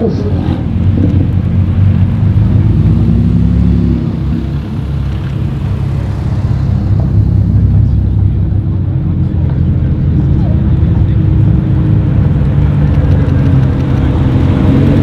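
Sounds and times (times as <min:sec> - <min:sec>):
car engine running at low revs: 0:00.0 - 0:15.0.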